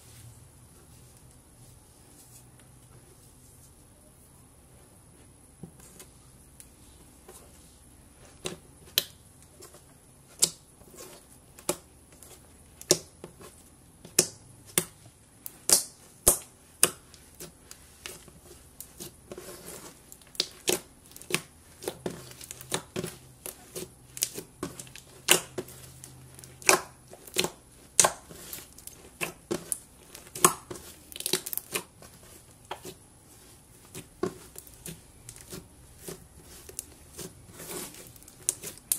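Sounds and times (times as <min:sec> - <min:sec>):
slime squishing: 0:06.8 - 0:38.9
soft crinkling: 0:16.8 - 0:38.9.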